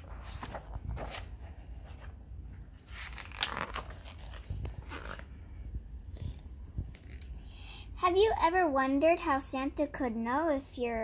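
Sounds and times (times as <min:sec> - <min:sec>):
book pages rustling: 0:00.0 - 0:05.5, 0:06.1 - 0:07.4.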